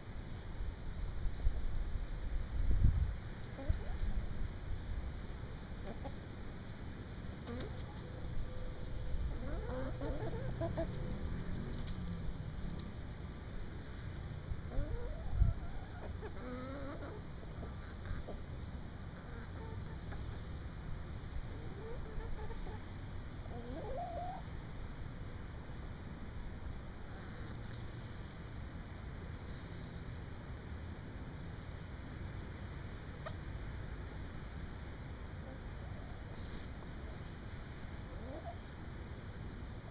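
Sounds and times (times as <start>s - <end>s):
insect chorus: 0.0s - 39.9s
chickens calling: 7.4s - 11.9s, 21.5s - 24.4s.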